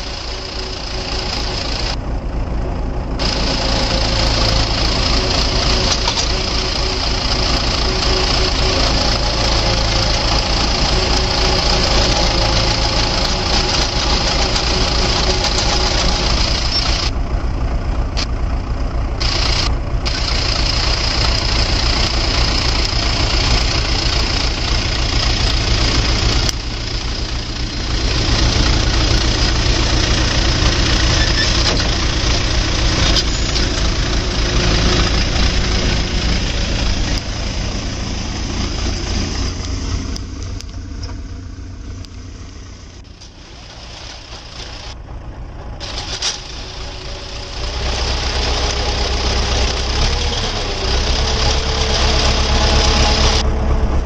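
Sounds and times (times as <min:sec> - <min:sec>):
tractor engine running: 0:00.0 - 0:54.0
auger boring into soil: 0:03.2 - 0:17.1.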